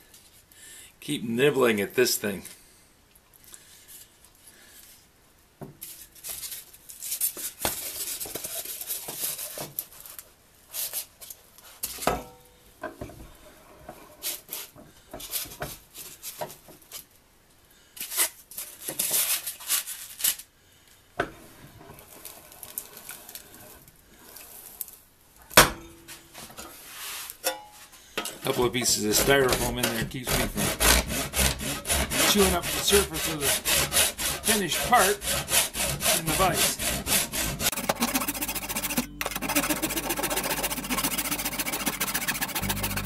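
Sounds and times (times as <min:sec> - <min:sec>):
wooden grille scraping and rustling: 0:28.4 - 0:30.7.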